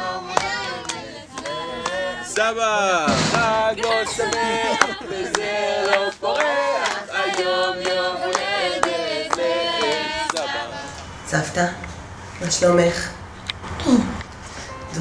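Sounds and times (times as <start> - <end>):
group singing in chorus: 0.0 - 11.6
hands clapping: 0.3 - 2.0, 3.3 - 10.6.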